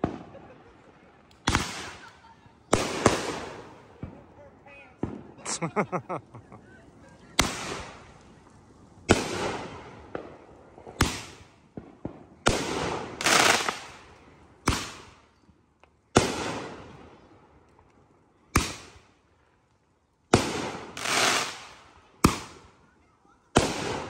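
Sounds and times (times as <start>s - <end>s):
fireworks bangs: 0.0s - 6.5s, 7.1s - 8.4s, 9.0s - 15.2s, 16.1s - 17.3s, 20.3s - 22.9s, 23.5s - 24.0s
crackling fizz of fireworks: 0.0s - 24.0s.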